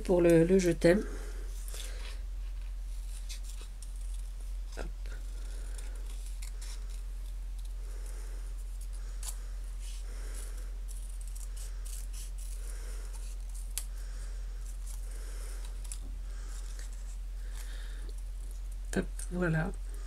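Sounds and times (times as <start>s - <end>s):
steady low hum: 0.0s - 20.0s
scissors snipping paper: 5.1s - 7.8s, 10.4s - 13.9s.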